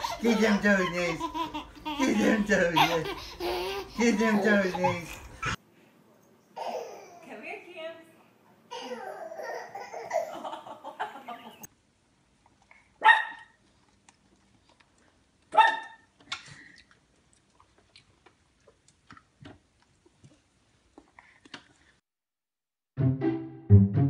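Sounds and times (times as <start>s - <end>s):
baby babbling: 8.7s - 10.2s
dog barking: 13.0s - 13.6s, 15.5s - 16.1s.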